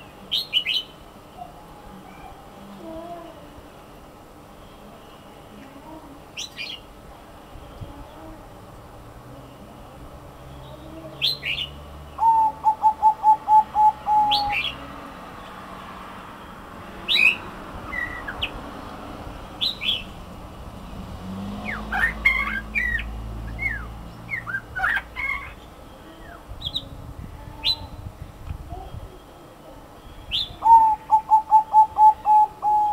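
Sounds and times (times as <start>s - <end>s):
birds chirping: 9.4s - 32.9s
dove cooing staccato notes: 12.2s - 14.7s, 30.6s - 32.9s.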